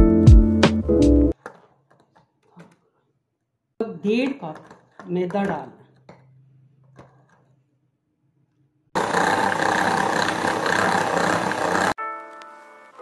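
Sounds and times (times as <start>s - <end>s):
electric hand mixer running: 9.0s - 12.0s.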